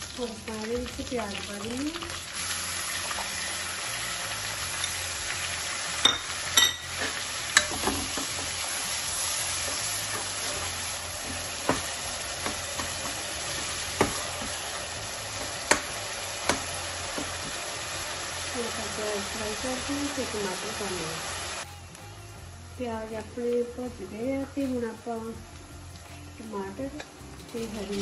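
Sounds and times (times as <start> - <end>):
onions sizzling in hot oil: 0.0 - 21.7, 22.8 - 28.0.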